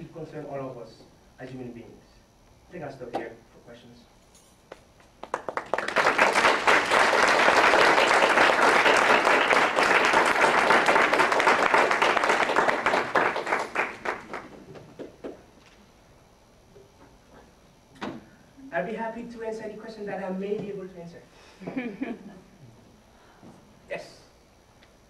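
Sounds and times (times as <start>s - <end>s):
audience applauding: 5.2s - 15.4s.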